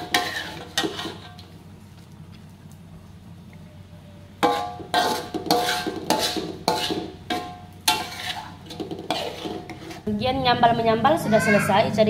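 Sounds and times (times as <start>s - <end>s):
spatula scraping metal wok: 0.0s - 1.5s, 4.4s - 10.1s.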